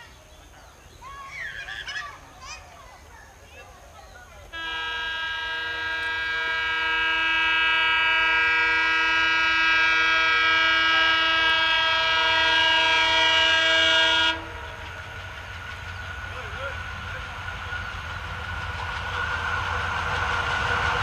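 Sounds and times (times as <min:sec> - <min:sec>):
train rumble: 0:00.0 - 0:21.0
train air horn blast: 0:04.5 - 0:14.7.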